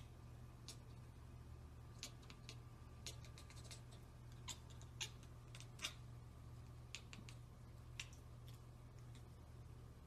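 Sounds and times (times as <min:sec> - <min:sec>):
cat chattering: 0:01.9 - 0:06.1, 0:06.8 - 0:08.3.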